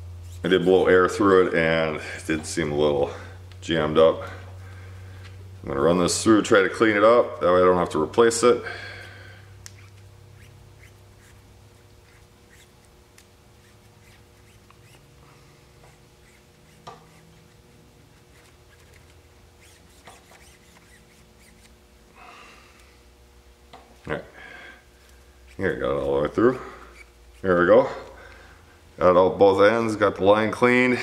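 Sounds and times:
low steady hum: 0.0s - 31.0s
wire rubbing in a hose: 0.2s - 1.2s, 9.6s - 21.8s, 25.4s - 27.8s.

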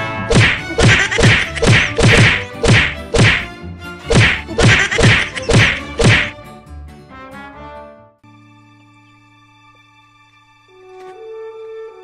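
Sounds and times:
punch and slap whacks: 0.3s - 3.5s, 4.1s - 6.3s.

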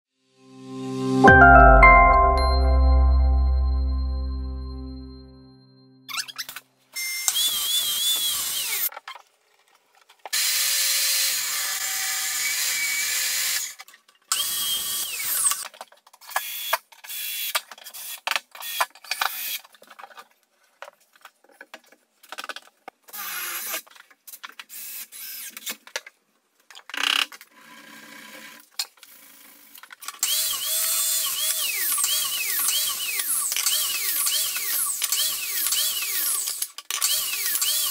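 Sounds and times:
cordless drill whirring: 7.0s - 8.9s, 30.2s - 37.9s.

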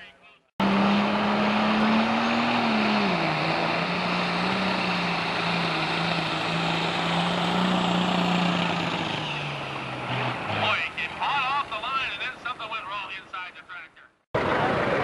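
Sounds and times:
diesel tractor engine running hard: 0.6s - 12.6s, 14.4s - 15.0s
exhaust and turbo rush: 0.6s - 12.6s.

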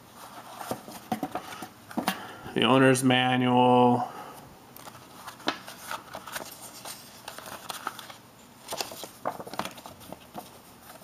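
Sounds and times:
paper rustling: 4.8s - 11.0s.

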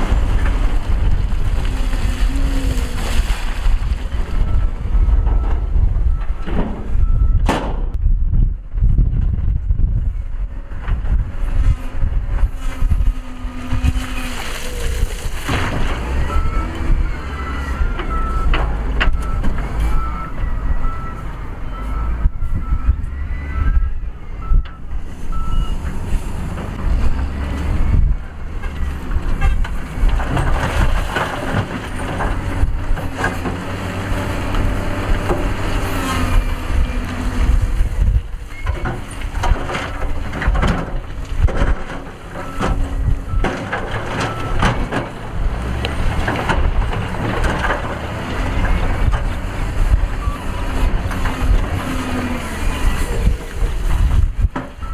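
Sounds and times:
rocks and rubble clattering: 0.0s - 7.1s, 10.7s - 16.9s, 28.6s - 54.9s
heavy diesel engines running: 0.0s - 7.5s, 8.7s - 54.9s
reversing alarm beeping: 16.1s - 25.8s.

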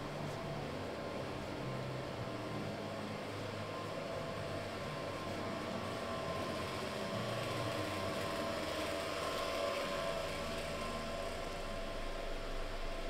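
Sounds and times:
faint hum: 9.2s - 13.0s.

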